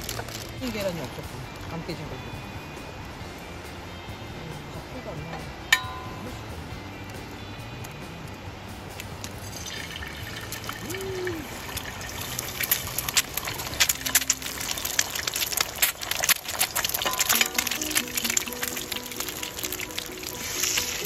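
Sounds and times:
egg sizzling in hot oil: 9.2s - 21.0s.

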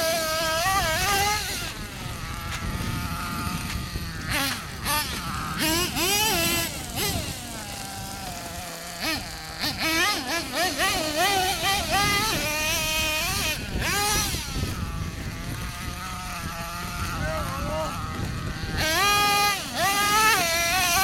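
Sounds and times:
toy truck motor revving: 0.0s - 21.0s.

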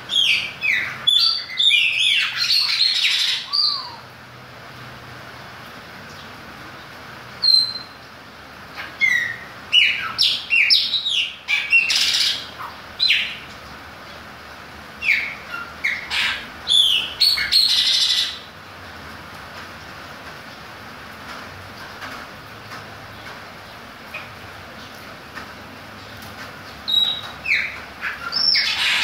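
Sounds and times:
blackbird singing: 0.0s - 4.1s, 7.4s - 8.0s, 8.8s - 13.4s, 15.0s - 18.5s, 26.7s - 29.0s.

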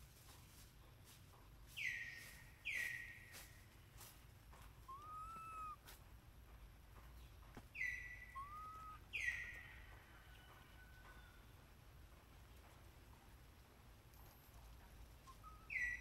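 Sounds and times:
high whistled animal calls: 4.9s - 5.8s, 7.8s - 9.7s, 15.3s - 16.0s.

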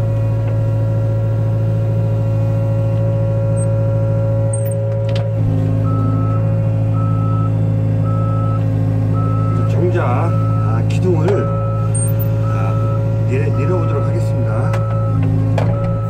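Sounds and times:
diesel engine running: 0.0s - 16.0s
warning alarm beeping: 4.5s - 4.9s, 5.8s - 16.0s.

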